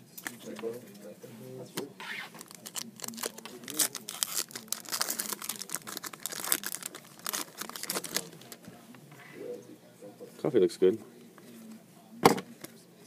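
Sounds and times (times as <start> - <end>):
card pack wrapper tearing and crumpling: 2.4 - 8.4.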